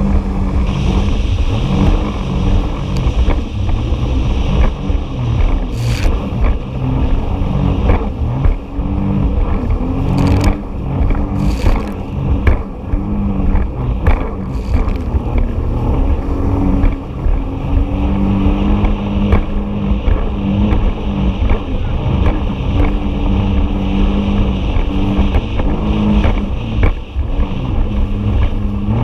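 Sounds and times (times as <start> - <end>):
hull thumping over waves: 0.0 - 29.0
jet ski engine running: 0.0 - 29.0
water spraying onto microphone: 5.6 - 6.2, 10.0 - 10.6, 11.3 - 12.1, 14.4 - 15.5.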